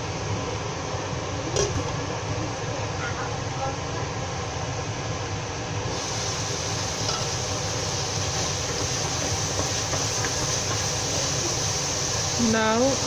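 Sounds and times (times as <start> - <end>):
steady hum: 0.0 - 13.0
food sizzling in a frying pan: 5.9 - 13.0.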